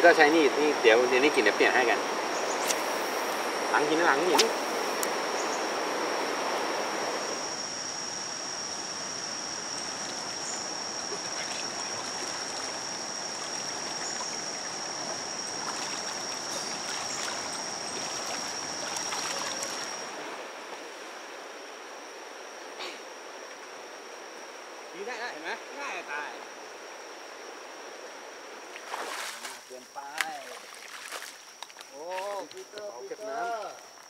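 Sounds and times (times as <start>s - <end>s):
high-pitched insect drone: 0.0s - 20.1s
stream water rushing: 0.0s - 22.6s, 28.4s - 29.8s, 30.4s - 31.6s.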